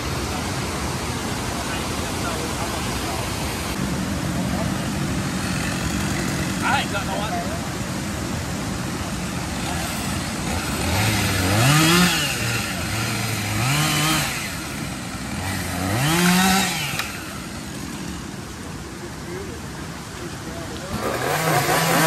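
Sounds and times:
small engine revving: 9.5 - 18.1, 20.8 - 22.0.

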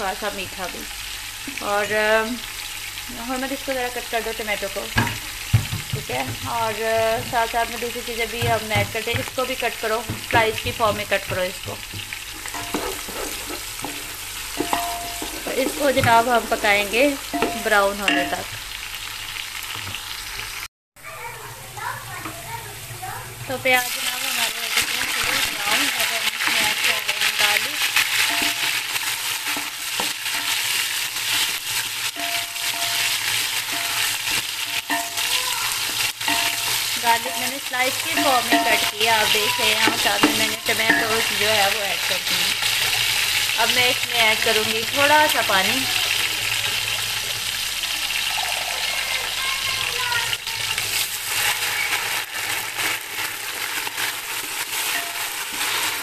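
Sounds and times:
onions sizzling in hot oil: 0.0 - 20.7, 21.4 - 56.0
spoon scraping a pot: 12.3 - 16.8, 24.8 - 41.8, 50.9 - 56.0.

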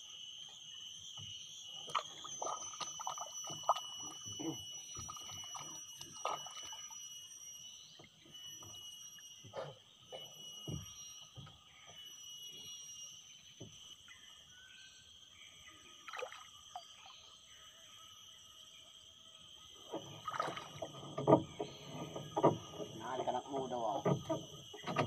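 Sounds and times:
light water splashes: 1.8 - 7.0, 16.0 - 17.3, 19.8 - 25.0
knocks on wooden boat: 24.0 - 25.0.

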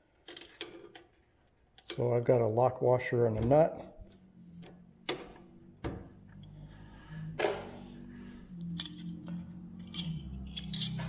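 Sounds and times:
faint low hum: 0.3 - 11.0
wrenches clinking on metal: 8.7 - 11.0.

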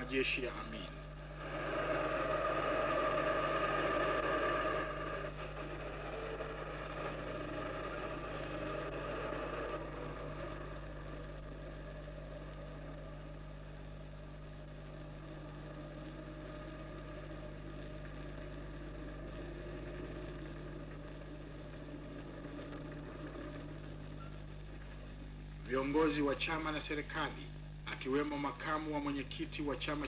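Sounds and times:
low film soundtrack hum: 0.0 - 30.0
vehicle engines rumbling: 1.3 - 25.2.

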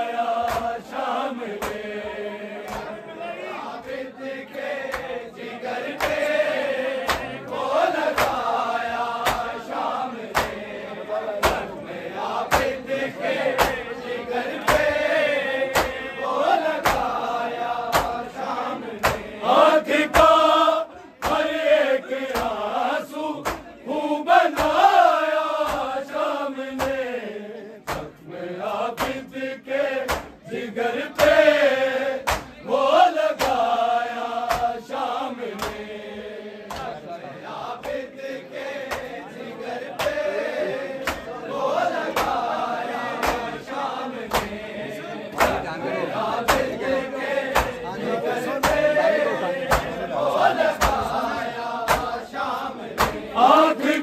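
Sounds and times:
men chanting a lament: 0.0 - 54.0
hand slaps on chest: 0.4 - 0.8, 1.6 - 1.8, 4.9 - 5.2, 6.0 - 6.3, 7.0 - 7.3, 8.1 - 8.5, 9.2 - 9.6, 10.3 - 10.6, 11.4 - 11.7, 12.5 - 12.8, 13.5 - 13.9, 14.6 - 15.0, 15.7 - 16.0, 16.8 - 17.2, 17.9 - 18.4, 19.0 - 19.3, 21.2 - 21.5, 22.3 - 22.6, 23.4 - 23.7, 24.5 - 24.9, 25.6 - 26.0, 26.8 - 27.1, 27.9 - 28.2, 28.9 - 29.3, 30.0 - 30.4, 31.2 - 31.4, 32.2 - 32.6, 33.3 - 33.7, 34.4 - 34.9, 35.6 - 35.8, 36.7 - 37.0, 38.8 - 39.2, 40.0 - 40.2, 41.0 - 41.3, 42.1 - 42.4, 43.2 - 43.5, 44.3 - 44.6, 45.4 - 45.6, 46.4 - 46.7, 47.5 - 47.8, 48.6 - 48.9, 49.7 - 50.0, 50.7 - 51.1, 51.8 - 52.2, 53.0 - 53.3.

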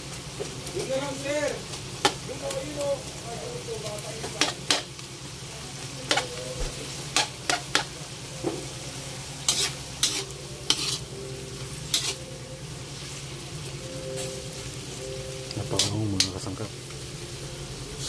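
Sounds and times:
vegetables sizzling in a wok: 0.0 - 18.0
metal spatula scraping a pan: 9.3 - 12.3.

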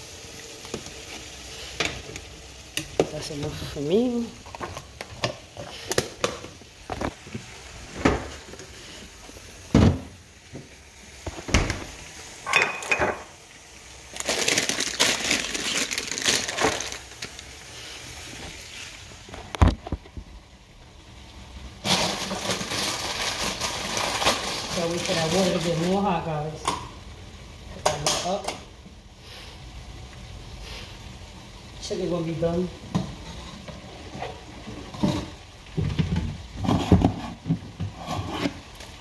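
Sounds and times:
steady hiss: 0.0 - 27.9, 28.6 - 35.8
water boiling in pot: 0.0 - 39.0
glass jars clinking: 12.5 - 13.3.

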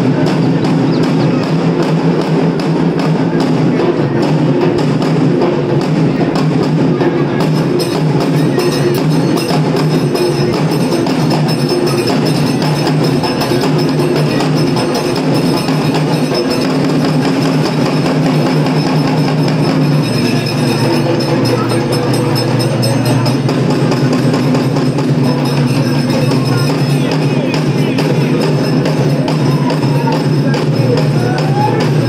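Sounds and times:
rhythmic drumming on barrels: 0.0 - 32.0.

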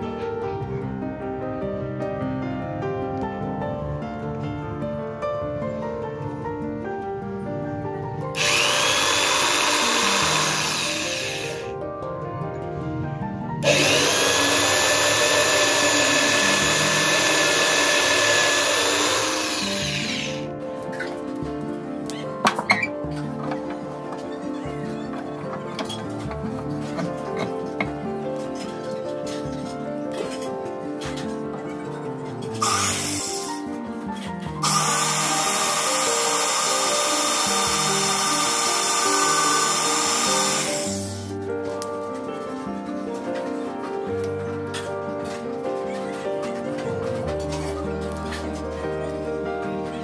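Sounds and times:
electric drill whining under load: 8.3 - 11.7, 13.6 - 20.5, 32.6 - 33.7, 34.6 - 41.3.

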